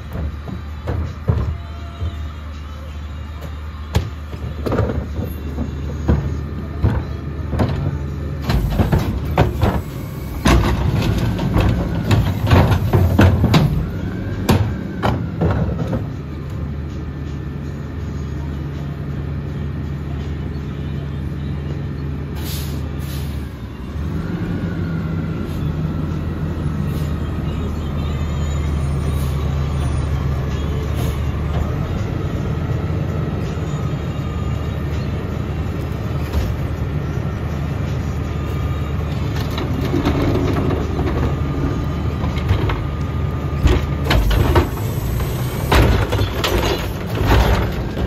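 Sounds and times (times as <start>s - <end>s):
garbage carts banging and clattering: 0.0s - 2.4s, 3.4s - 16.6s, 38.9s - 48.0s
diesel engine idling: 0.0s - 48.0s.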